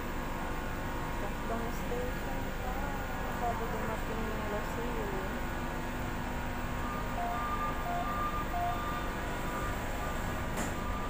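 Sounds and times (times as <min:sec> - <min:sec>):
train car hum: 0:00.0 - 0:11.0
two-pitch beeping: 0:06.7 - 0:10.2.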